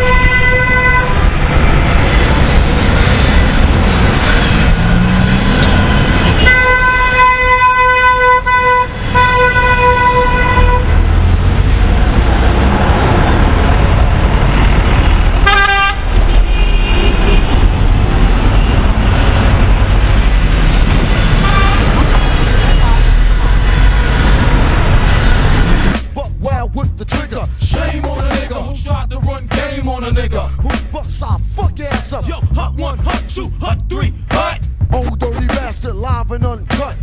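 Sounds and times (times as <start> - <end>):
vehicle horn honking: 0.0 - 1.3, 5.7 - 11.0, 15.4 - 17.6, 21.4 - 22.0
lower horn toot: 0.0 - 1.4, 4.3 - 11.1, 15.4 - 17.5
wind rumble: 0.0 - 6.4, 10.1 - 37.0
traffic noise: 0.0 - 37.0.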